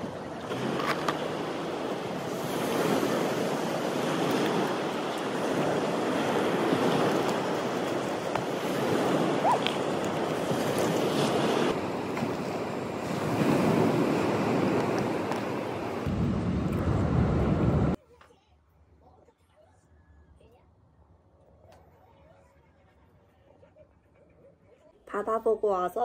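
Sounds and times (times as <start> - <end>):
ocean surf on beach: 0.0 - 18.0.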